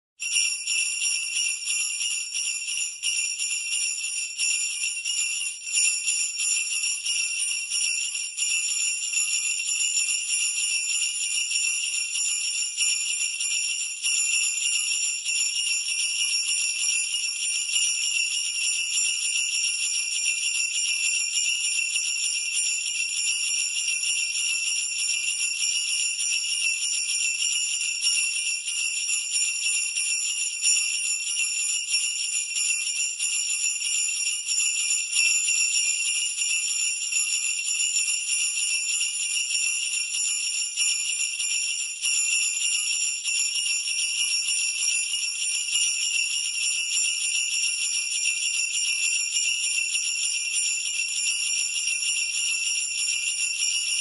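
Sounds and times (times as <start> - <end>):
sleigh bells jingling: 0.2 - 54.0.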